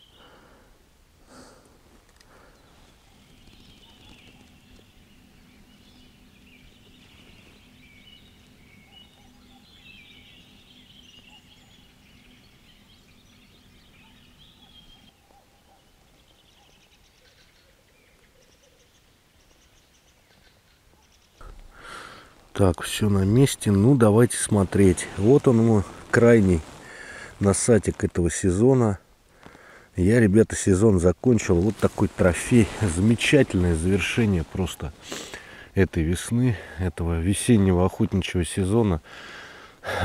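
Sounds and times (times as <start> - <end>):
small birds chirping and trilling: 0.0 - 0.7, 2.2 - 40.0.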